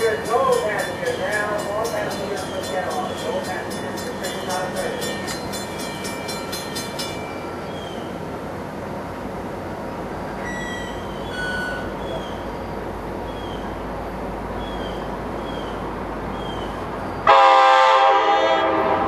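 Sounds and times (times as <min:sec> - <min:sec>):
wheels clicking over rail joints: 0:00.0 - 0:07.9
train rumbling on rails: 0:00.0 - 0:19.0.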